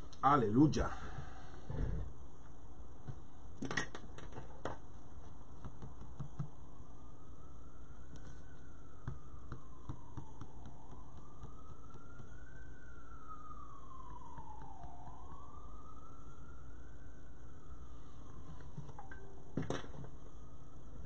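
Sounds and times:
steady low hum: 0:00.0 - 0:21.0
faint siren wailing: 0:04.4 - 0:21.0.

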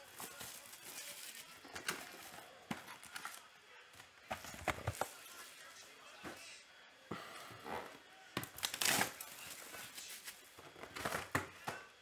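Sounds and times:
plastic shrink-wrap crinkling: 0:00.0 - 0:03.5, 0:08.4 - 0:11.3
card packs set on table: 0:00.0 - 0:05.4.

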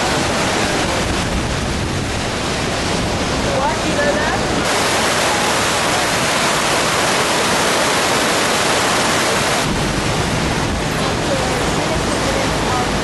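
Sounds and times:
floodwater rushing and churning: 0:00.0 - 0:13.0
low rumble: 0:09.5 - 0:13.0.

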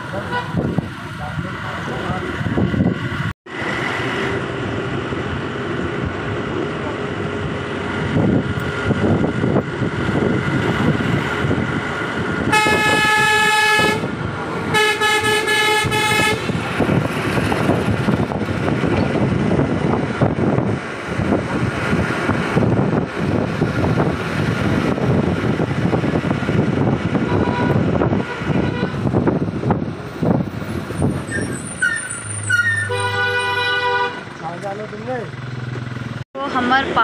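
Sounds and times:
road and wind noise: 0:00.0 - 0:37.0
vehicle horn blasts: 0:00.2 - 0:00.6, 0:12.5 - 0:14.1, 0:14.7 - 0:16.5, 0:27.2 - 0:29.1, 0:32.7 - 0:34.3.

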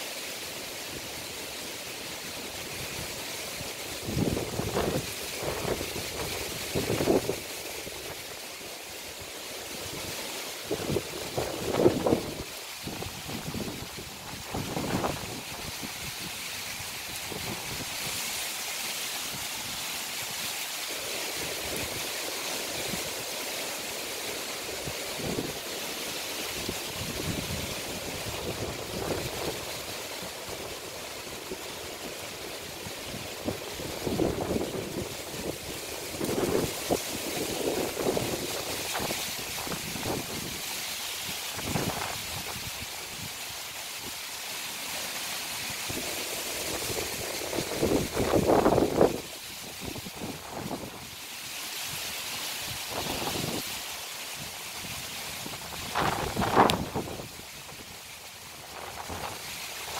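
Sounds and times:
wind rustling palm fronds: 0:00.0 - 0:59.9
wind buffeting microphone: 0:33.1 - 0:40.6, 0:46.7 - 0:51.1, 0:54.8 - 0:57.4.

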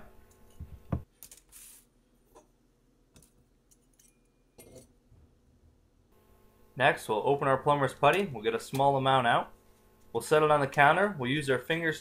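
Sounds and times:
light metal clinks and knocks: 0:03.2 - 0:05.0.

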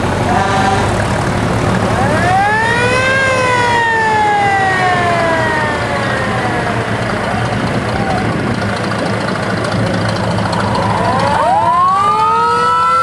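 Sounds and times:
truck engines running: 0:00.0 - 0:13.0
fire truck siren winding: 0:02.0 - 0:08.7, 0:10.2 - 0:13.0.

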